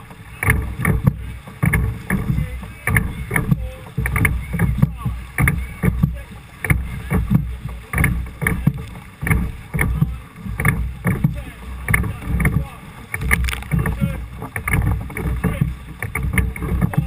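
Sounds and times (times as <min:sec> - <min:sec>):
rough water: 0:00.0 - 0:17.0
wind: 0:00.0 - 0:17.0
wooden oars knocking: 0:00.0 - 0:17.0.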